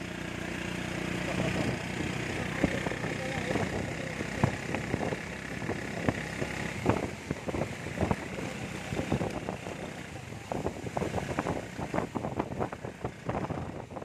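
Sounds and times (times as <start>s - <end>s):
rain and wet tyres hissing: 0.0s - 14.0s
small engine running: 0.0s - 14.0s.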